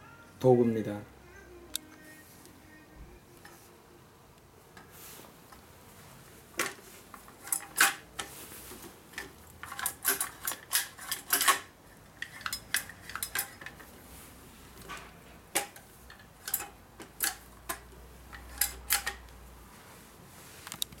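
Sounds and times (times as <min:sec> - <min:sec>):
weed puller clicking and clattering: 0:06.6 - 0:08.4, 0:09.1 - 0:13.9, 0:14.9 - 0:19.2.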